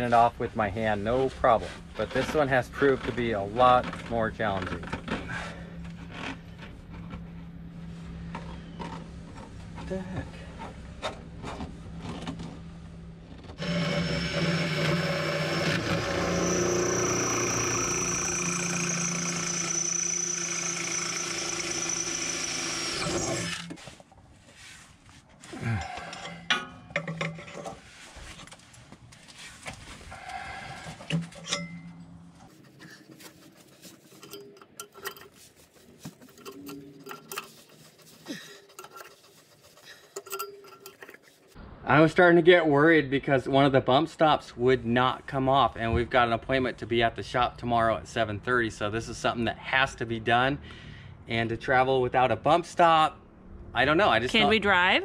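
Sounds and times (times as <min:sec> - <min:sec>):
power drill whining: 0:13.6 - 0:23.8
clicks and rattles of hand tools: 0:32.6 - 0:41.6.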